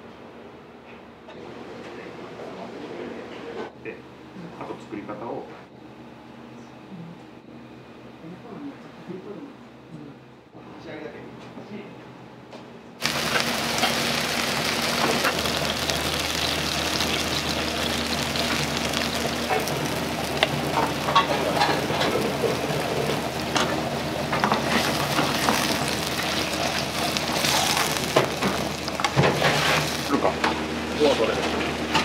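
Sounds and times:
food sizzling in pan: 0:13.0 - 0:31.0.

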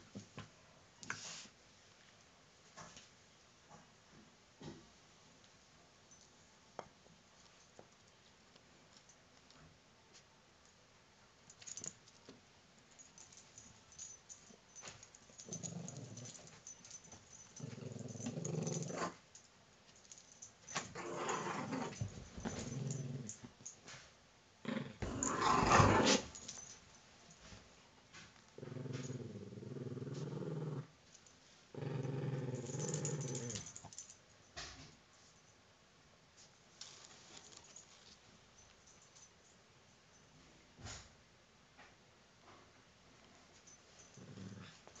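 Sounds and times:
puppy growling: 0:17.6 - 0:19.2, 0:21.0 - 0:22.0, 0:24.7 - 0:26.3, 0:28.6 - 0:30.9, 0:31.8 - 0:33.7.

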